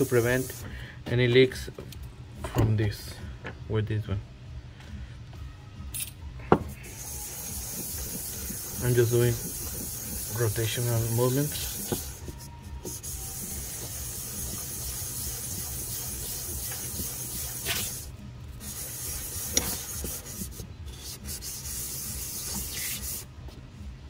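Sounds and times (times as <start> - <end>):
metal wet-sanding on sandpaper: 0.0 - 0.6, 6.8 - 23.3.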